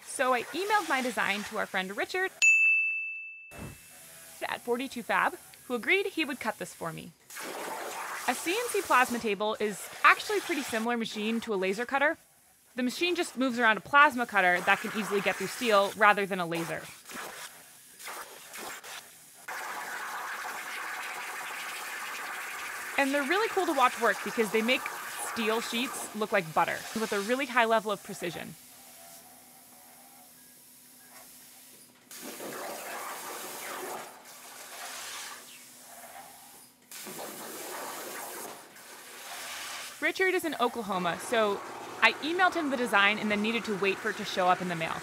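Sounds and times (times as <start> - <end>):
plasma torch hissing: 0.0 - 2.0, 4.5 - 11.8, 12.4 - 30.1.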